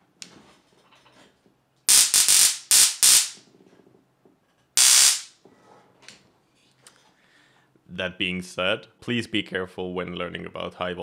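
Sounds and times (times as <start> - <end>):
electric arc buzzing and crackling: 1.9 - 3.4, 4.8 - 5.4.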